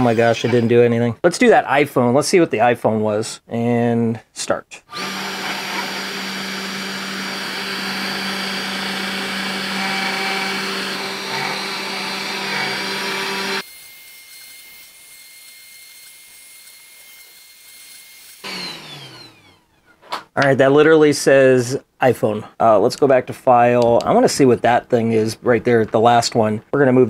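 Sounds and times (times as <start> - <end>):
router spindle engraving metal: 4.9 - 19.7.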